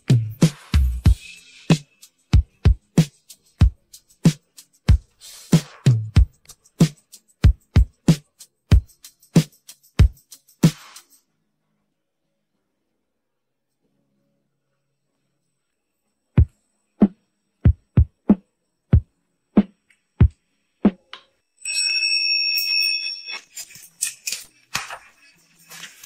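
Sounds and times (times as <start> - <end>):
electronic drum beat: 0.0 - 11.2, 16.4 - 21.1.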